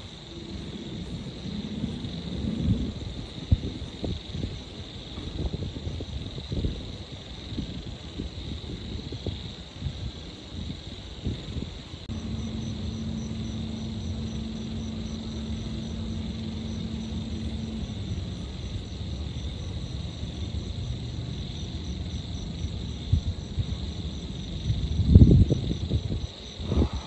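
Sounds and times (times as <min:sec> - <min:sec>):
insects trilling: 0:00.0 - 0:27.0
steady low hum: 0:11.8 - 0:27.0
distant traffic rumble: 0:12.0 - 0:27.0.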